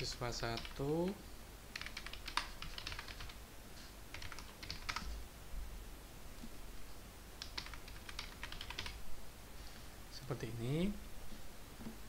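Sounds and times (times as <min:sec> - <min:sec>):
typing on keyboard: 0:00.5 - 0:03.4, 0:04.1 - 0:05.1, 0:07.4 - 0:09.0.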